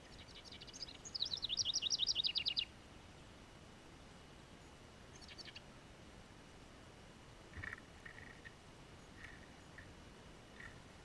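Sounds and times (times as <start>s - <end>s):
wren singing trill: 0.0s - 2.7s, 5.1s - 5.6s.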